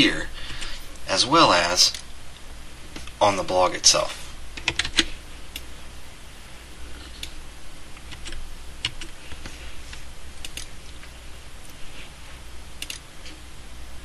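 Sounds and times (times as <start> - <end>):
steady low hum: 0.0 - 14.0
keyboard and mouse clicks: 4.6 - 5.1, 10.4 - 10.7, 12.8 - 13.0.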